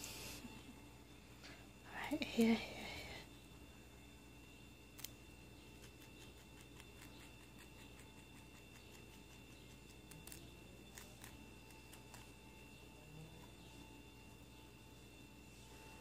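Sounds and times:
rabbit chewing grass clicks: 4.9 - 14.1.

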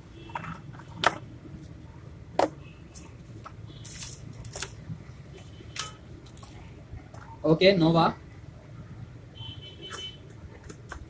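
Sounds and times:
knocks and clicks of handling: 0.3 - 1.7, 2.4 - 4.8.

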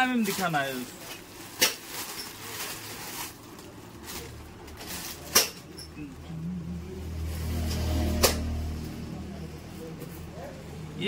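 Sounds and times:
plastic packaging crinkling: 0.0 - 5.7.

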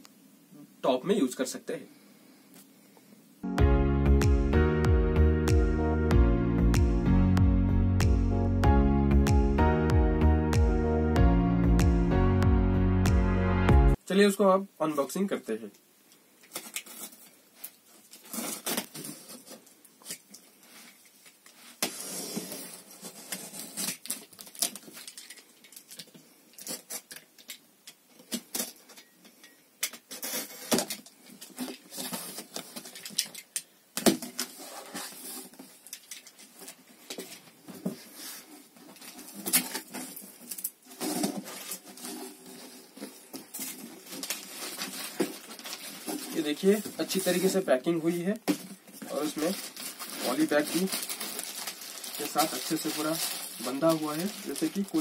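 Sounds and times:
cardboard scraping and crackling: 34.1 - 47.6, 48.6 - 55.0.

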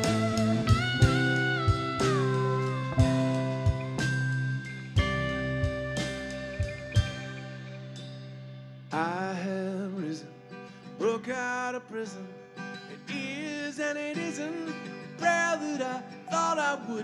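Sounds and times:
pitch-bending lead melody: 0.0 - 8.6
drums: 0.0 - 9.2
bass guitar: 0.0 - 9.3
acoustic guitar: 0.0 - 17.0
keyboard: 0.0 - 17.0.

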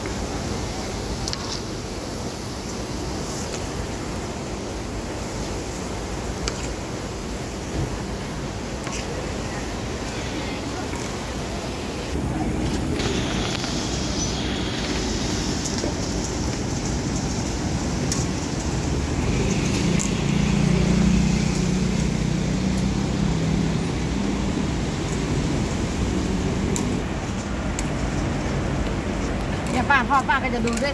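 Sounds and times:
vehicle engine hum: 12.1 - 29.9.

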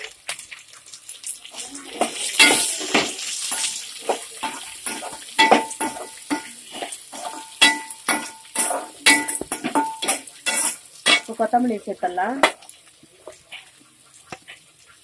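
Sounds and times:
food sizzling in hot oil: 0.0 - 15.0
metal ladle scraping a pan: 2.0 - 11.4
ladle clinking on pan: 2.4 - 11.3.

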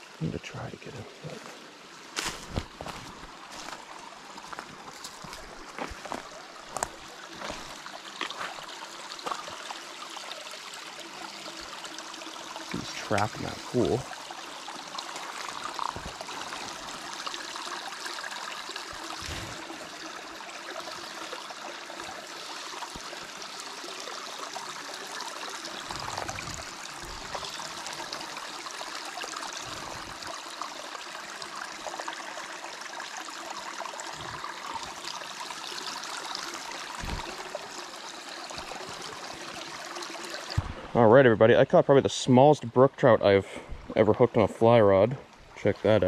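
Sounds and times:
stream rushing over stones: 0.0 - 46.0
soft low thumps: 37.0 - 37.4, 40.6 - 40.9.

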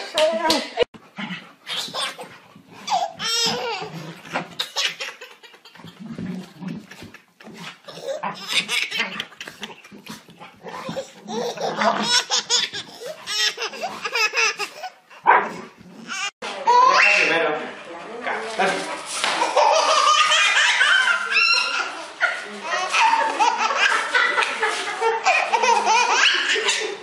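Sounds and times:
baby laughing: 1.6 - 7.2, 7.8 - 15.0, 19.3 - 27.0.

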